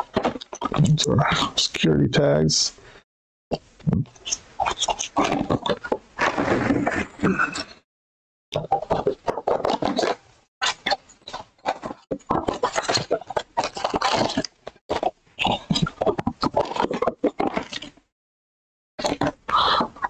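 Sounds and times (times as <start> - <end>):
cardboard scraping and crackling: 4.8 - 7.2.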